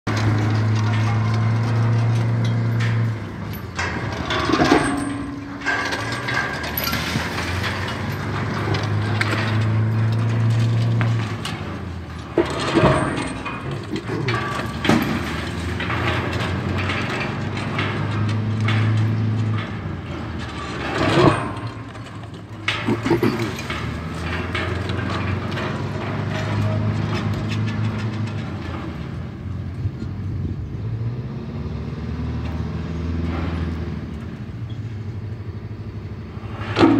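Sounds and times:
crane diesel engine drone: 0:00.1 - 0:36.9
concrete breaking and falling: 0:03.8 - 0:19.6, 0:20.3 - 0:28.9.

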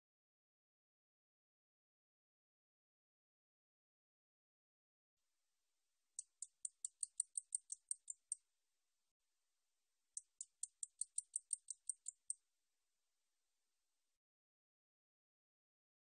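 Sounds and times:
katydid ticking song: 0:06.2 - 0:08.4, 0:10.2 - 0:12.4.

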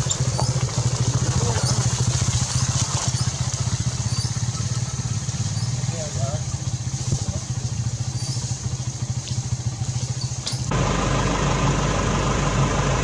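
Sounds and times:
motor droning: 0:07.0 - 0:13.0
steady hum: 0:10.7 - 0:13.0.

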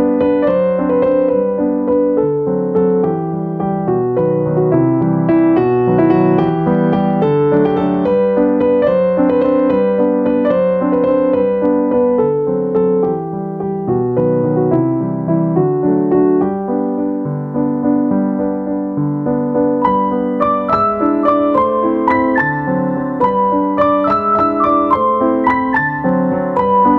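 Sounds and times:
piano music: 0:00.0 - 0:26.9.

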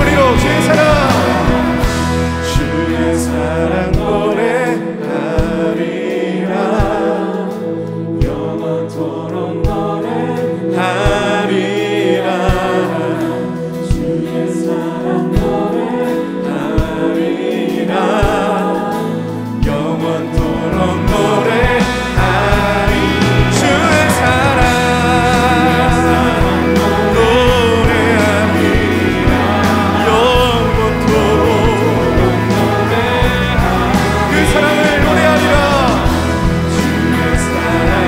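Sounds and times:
steady drum beat: 0:00.0 - 0:06.0, 0:11.0 - 0:17.4, 0:18.1 - 0:38.0
acoustic guitars: 0:00.0 - 0:07.0, 0:10.5 - 0:38.0
piano: 0:00.0 - 0:38.0
voices singing together: 0:00.0 - 0:38.0.

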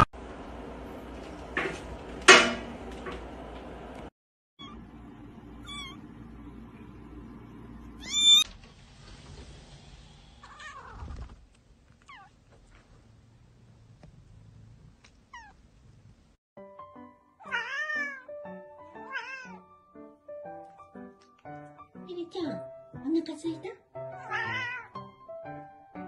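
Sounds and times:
cat meowing loudly: 0:08.0 - 0:08.4, 0:17.4 - 0:18.3, 0:19.0 - 0:19.6, 0:24.2 - 0:24.9.

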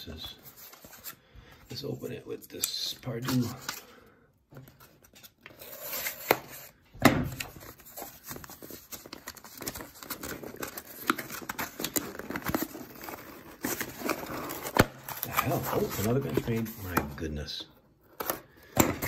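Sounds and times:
crinkling and scraping: 0:00.0 - 0:19.0
cardboard box torn open: 0:07.3 - 0:16.3.

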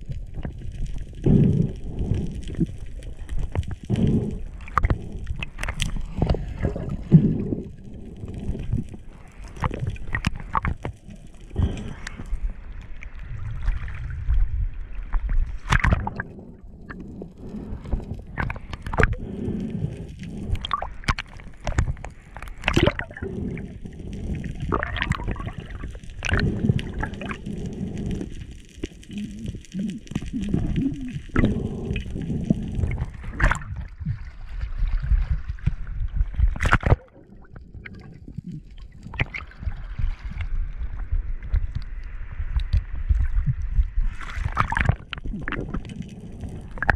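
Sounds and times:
seawater sloshing and gurgling: 0:01.3 - 0:28.3, 0:29.1 - 0:46.9
splashes: 0:32.9 - 0:35.7, 0:36.6 - 0:37.2, 0:44.1 - 0:46.0.

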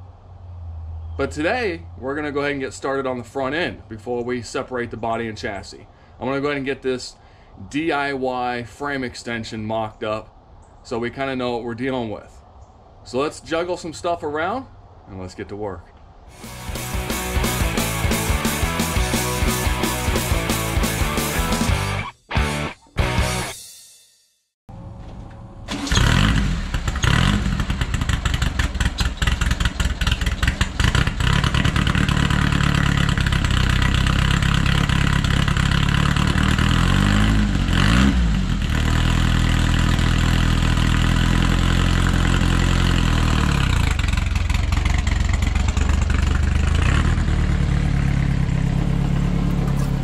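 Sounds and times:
car engine idling and revving: 0:24.7 - 0:50.0.

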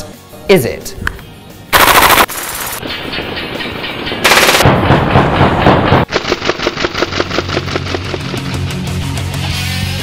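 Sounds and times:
airsoft rifle firing bursts: 0:01.8 - 0:02.4, 0:04.3 - 0:04.7, 0:06.1 - 0:08.2.

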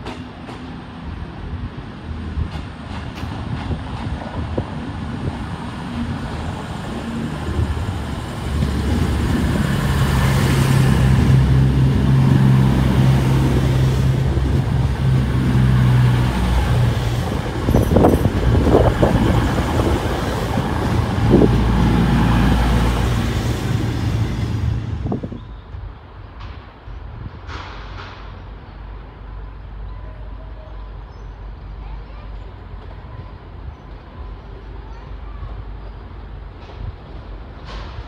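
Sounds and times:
diesel train engine drone: 0:00.0 - 0:38.0
train wheel clanks: 0:17.5 - 0:19.2.

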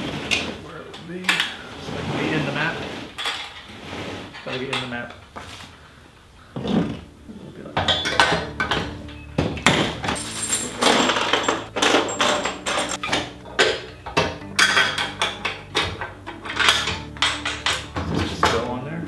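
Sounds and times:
metal parts clinking on table: 0:10.0 - 0:13.8.

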